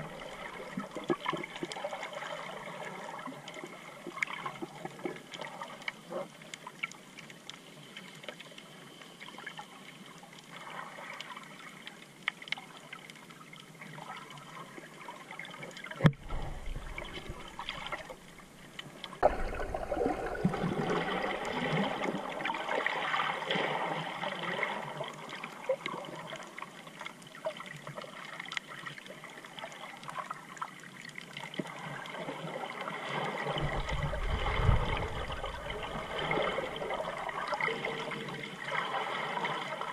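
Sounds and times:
rush of water: 15.7s - 26.6s, 31.0s - 39.9s
low rumbling: 16.1s - 18.6s, 33.6s - 37.3s.

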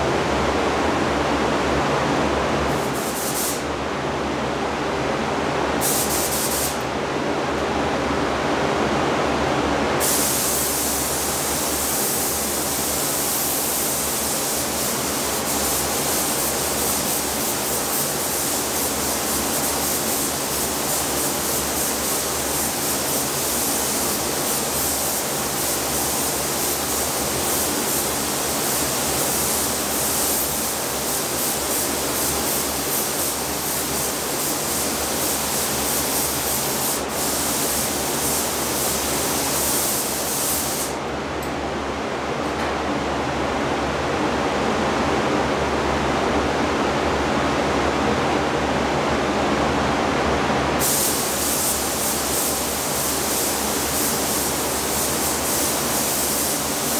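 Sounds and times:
spray gun hissing: 2.7s - 3.7s, 5.8s - 6.8s, 10.0s - 41.0s, 50.8s - 56.9s.

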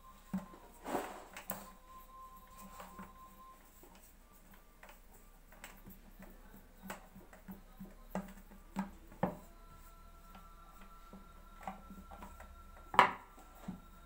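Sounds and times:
hands shaping dough on wood: 0.0s - 14.0s
wooden rolling pin knocks: 12.9s - 13.3s.

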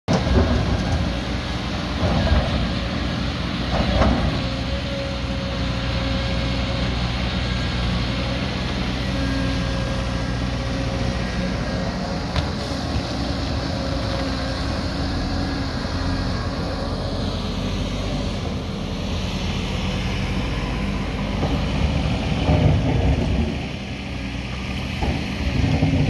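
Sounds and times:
backhoe loader running: 0.1s - 26.0s
excavator engine and hydraulics: 0.1s - 26.0s.

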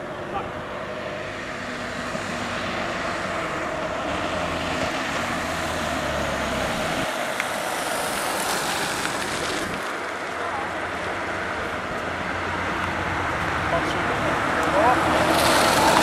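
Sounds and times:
cars and motorcycles approaching: 0.0s - 16.0s.

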